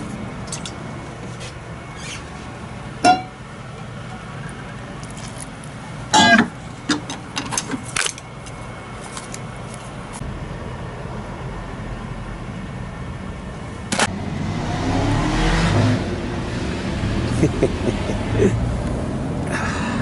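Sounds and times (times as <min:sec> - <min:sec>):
vehicle engine rumble: 0:00.0 - 0:20.0
rushing tyre noise: 0:14.0 - 0:20.0.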